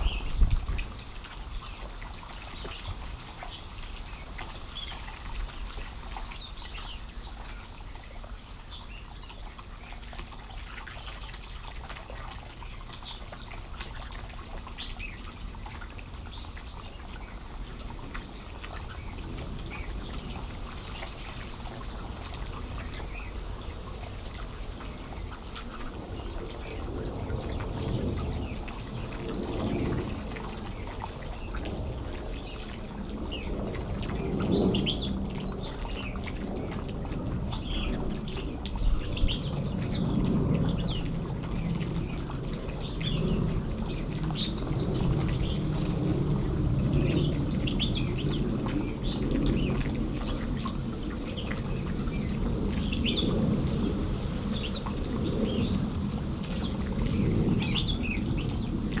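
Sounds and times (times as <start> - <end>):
water rushing: 0.0 - 59.0
birds chirping: 42.8 - 45.8.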